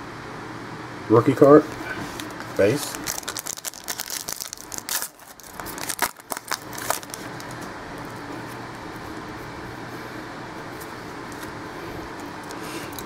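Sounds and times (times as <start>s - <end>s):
wrapper crinkling: 2.3s - 8.2s.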